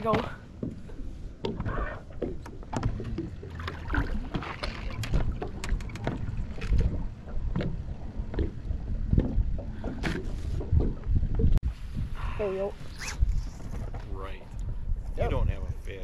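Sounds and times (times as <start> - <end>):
water lapping against hull: 0.0 - 16.0
wind on microphone: 4.8 - 16.0.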